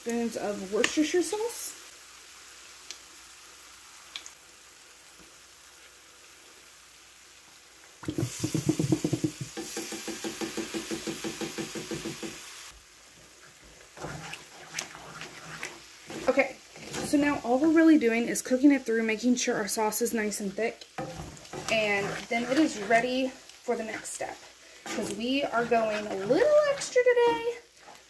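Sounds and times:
faint skillet sizzle: 0:00.0 - 0:28.0
wooden spoon scraping skillet: 0:13.1 - 0:18.2, 0:20.1 - 0:28.0.

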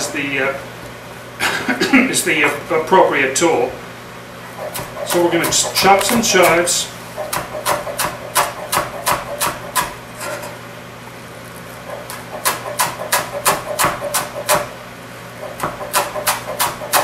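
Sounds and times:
knife chopping on cutting board: 0:04.6 - 0:10.0, 0:11.9 - 0:14.7, 0:15.4 - 0:17.0.

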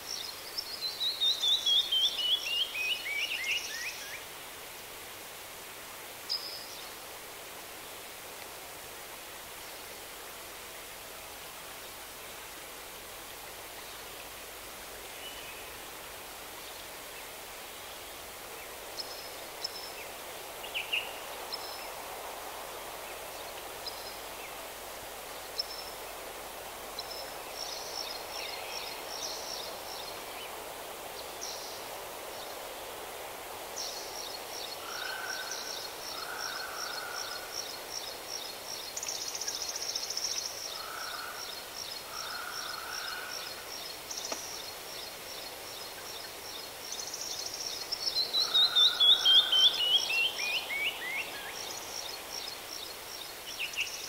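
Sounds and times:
steady outdoor hiss: 0:00.0 - 0:54.0
songbirds singing: 0:33.7 - 0:54.0.

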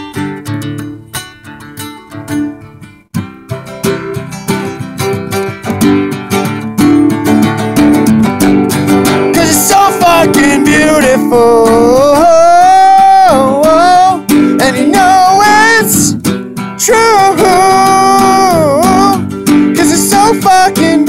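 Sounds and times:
strummed acoustic guitar: 0:00.0 - 0:21.0
man singing: 0:09.0 - 0:21.0.

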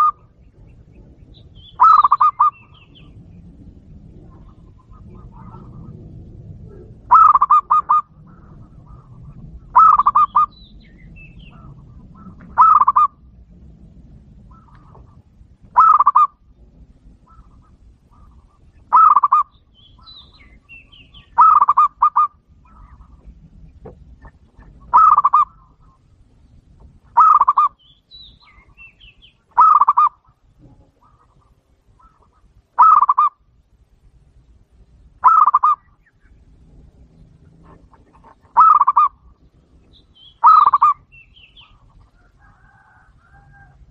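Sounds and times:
dove cooing: 0:00.0 - 0:00.4, 0:01.7 - 0:03.2, 0:04.1 - 0:10.6, 0:11.2 - 0:13.3, 0:14.4 - 0:16.4, 0:17.0 - 0:23.4, 0:24.2 - 0:26.0, 0:27.1 - 0:27.8, 0:29.5 - 0:33.4, 0:35.2 - 0:35.9, 0:37.0 - 0:39.4, 0:40.3 - 0:43.8.

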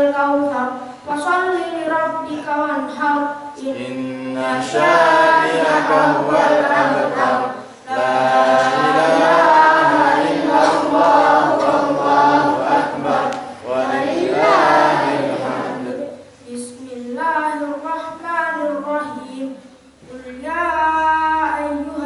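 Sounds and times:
boy chanting into a microphone: 0:00.0 - 0:22.0.

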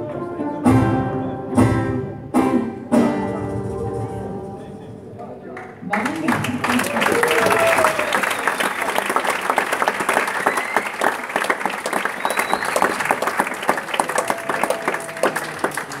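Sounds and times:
audience applauding: 0:05.6 - 0:16.0.

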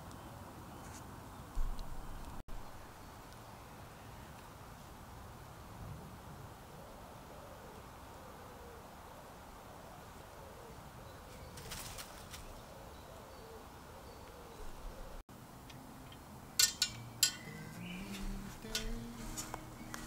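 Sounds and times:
faint bird call: 0:06.7 - 0:09.0, 0:09.7 - 0:15.2
campfire crackles: 0:15.0 - 0:20.0
soft guitar music: 0:16.9 - 0:20.0.

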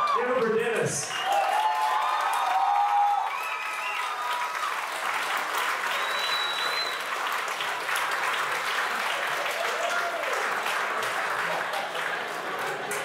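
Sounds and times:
whoops of cheering: 0:00.0 - 0:00.2, 0:01.1 - 0:04.8, 0:05.8 - 0:07.1, 0:09.2 - 0:10.5
audience applauding: 0:00.0 - 0:13.0
long high whistle: 0:05.9 - 0:07.0.

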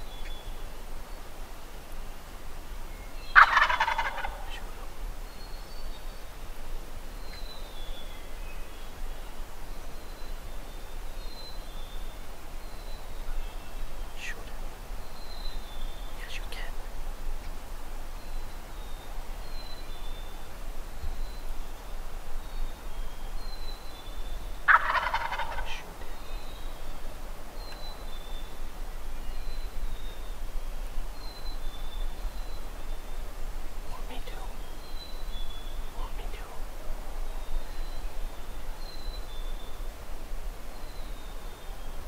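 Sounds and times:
turkey gobbling: 0:03.3 - 0:04.6, 0:24.7 - 0:25.9.

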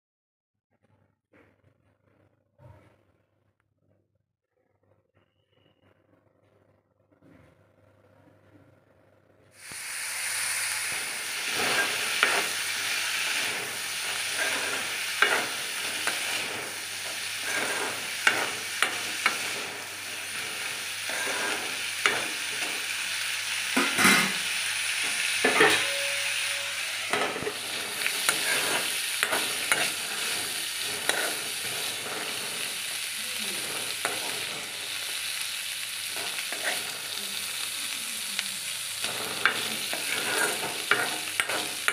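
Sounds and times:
chickpeas and onions sizzling in oil: 0:09.6 - 0:41.9
metal spoon scraping a pan: 0:10.7 - 0:37.7, 0:38.8 - 0:41.9.

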